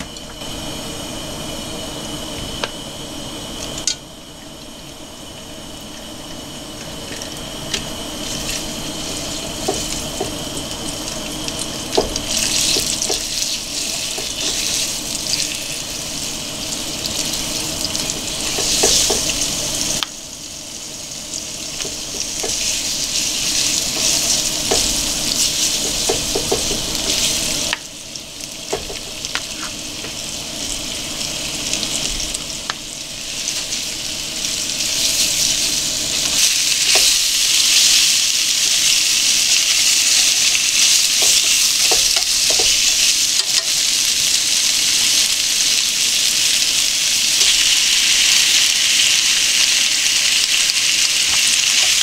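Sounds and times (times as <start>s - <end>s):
meat sizzling in hot oil: 0.0s - 52.0s.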